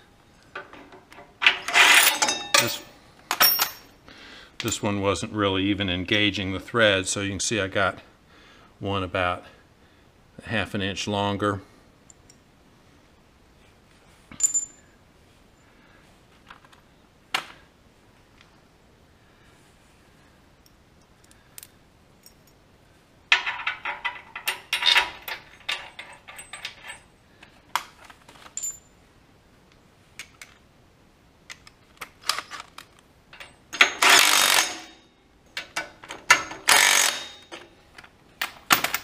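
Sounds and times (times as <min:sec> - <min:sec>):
metal bolts and nuts clinking: 0:00.3 - 0:04.0, 0:14.3 - 0:14.9, 0:20.6 - 0:22.6, 0:23.3 - 0:27.2, 0:27.8 - 0:28.9, 0:31.5 - 0:39.0
cordless drill spinning a bolt: 0:34.0 - 0:34.8, 0:36.7 - 0:37.3.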